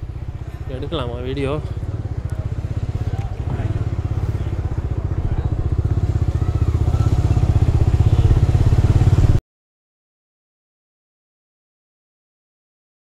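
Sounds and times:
motorcycle engine puttering: 0:00.0 - 0:09.4.

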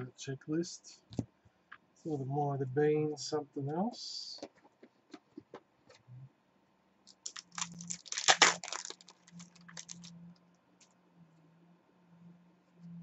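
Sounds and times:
foil wrapper tearing and crinkling: 0:07.1 - 0:10.1.

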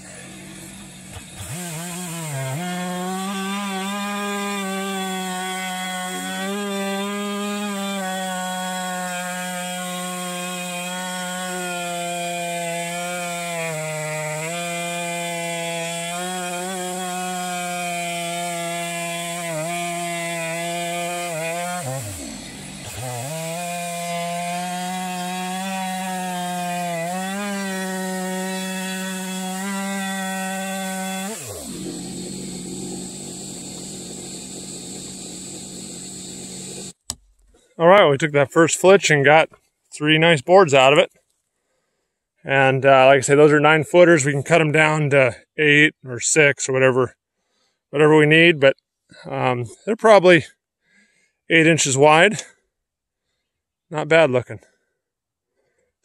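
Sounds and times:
chainsaw cutting wood: 0:00.0 - 0:37.5.

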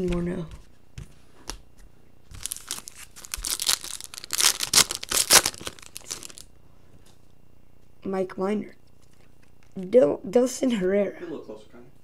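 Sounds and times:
foil wrapper tearing and crinkling: 0:02.4 - 0:06.5.

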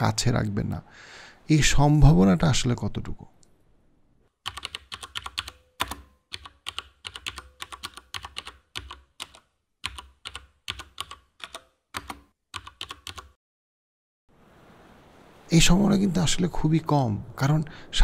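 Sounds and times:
computer keyboard typing: 0:04.4 - 0:13.4.

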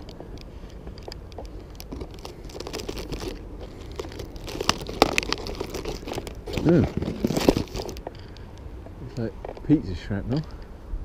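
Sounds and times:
plastic tub crinkling and clicking: 0:00.0 - 0:08.4
low steady rumble: 0:00.0 - 0:11.0.

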